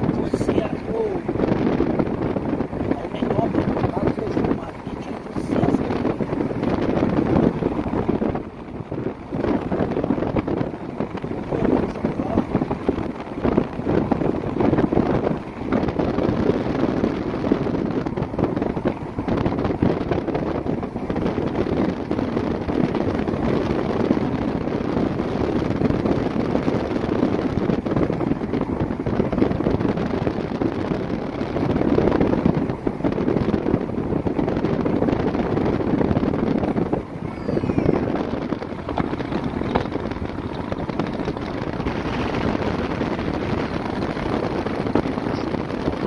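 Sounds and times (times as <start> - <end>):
vehicle road noise: 0.0 - 46.0
wind buffeting microphone: 0.0 - 46.0.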